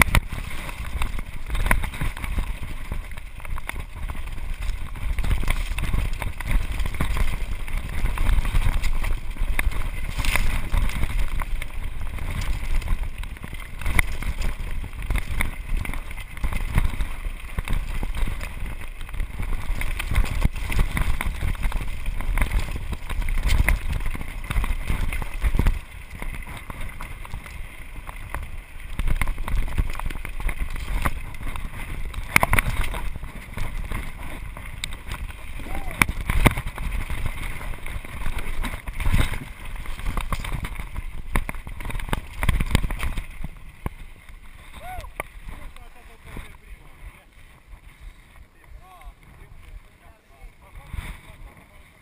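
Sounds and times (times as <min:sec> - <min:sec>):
bike tyres rumbling over stones: 0:00.0 - 0:52.0.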